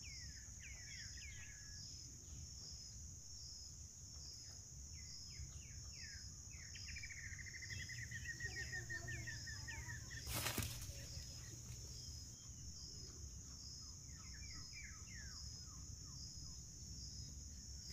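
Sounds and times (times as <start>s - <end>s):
insects droning: 0.0s - 17.9s
birds chirping: 4.4s - 17.9s.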